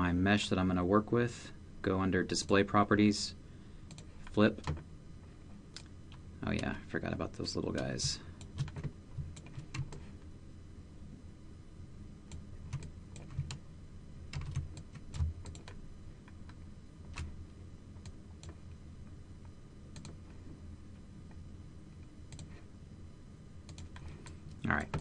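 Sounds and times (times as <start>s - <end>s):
faint low hum: 0.0s - 25.0s
keyboard and mouse clicks: 14.4s - 15.8s, 20.0s - 20.2s, 23.7s - 25.0s.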